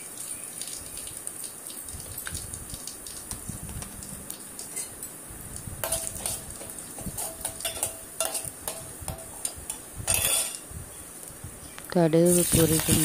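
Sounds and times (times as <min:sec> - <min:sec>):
oil sizzling: 0:00.0 - 0:11.4, 0:12.2 - 0:13.0
ladle clinking and scraping pot: 0:05.8 - 0:10.7.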